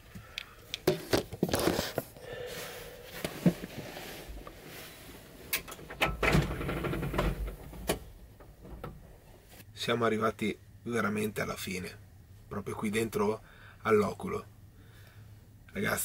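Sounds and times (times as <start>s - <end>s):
objects being handled: 0.4s - 5.7s
bedding rustling: 1.4s - 5.6s.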